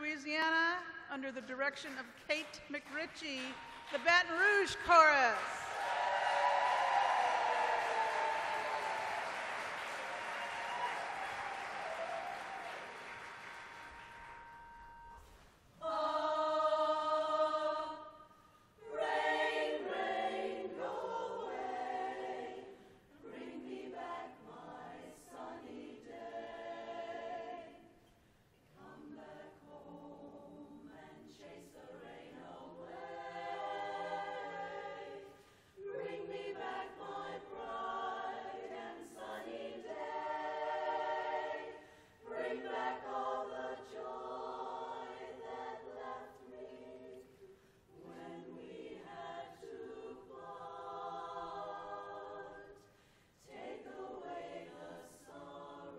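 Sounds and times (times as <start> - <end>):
applause: 1.4 - 14.8
women's chorus singing a cappella: 3.3 - 14.5, 15.7 - 55.9.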